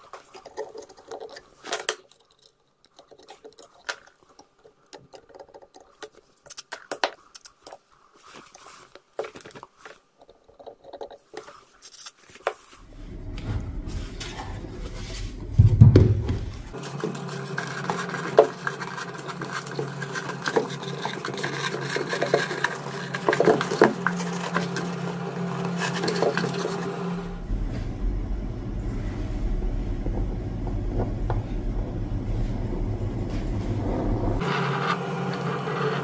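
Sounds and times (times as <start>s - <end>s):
wadding rustling: 7.8s - 27.9s
steady background tone: 12.8s - 35.6s
heavy low thump: 12.9s - 16.7s, 27.3s - 34.4s.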